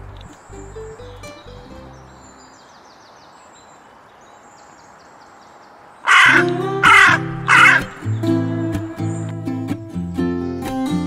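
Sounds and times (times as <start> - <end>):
crow cawing: 6.0 - 8.0
background music: 6.3 - 11.0.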